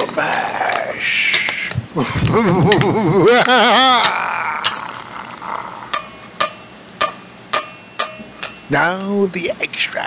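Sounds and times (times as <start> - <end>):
person's voice warbling: 0.0 - 1.4, 3.3 - 6.0.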